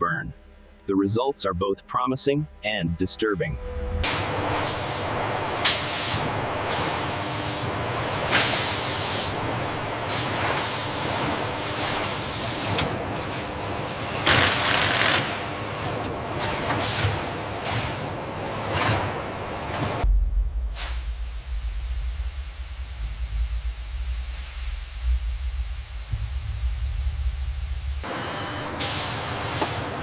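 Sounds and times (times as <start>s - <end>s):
assembly-line machinery running: 14.0s - 15.4s, 20.8s - 28.8s.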